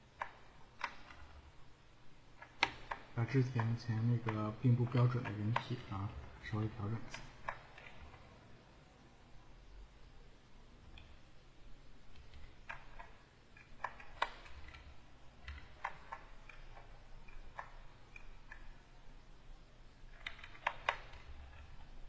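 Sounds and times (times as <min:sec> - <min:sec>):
computer keys clicking: 0:00.0 - 0:01.5, 0:02.3 - 0:08.2, 0:12.0 - 0:18.9, 0:20.0 - 0:22.0.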